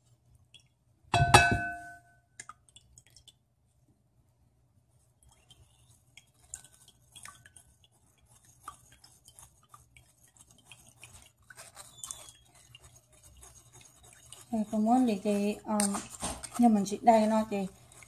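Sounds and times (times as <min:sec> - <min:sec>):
spoon scraping in mesh strainer: 0:05.3 - 0:18.0.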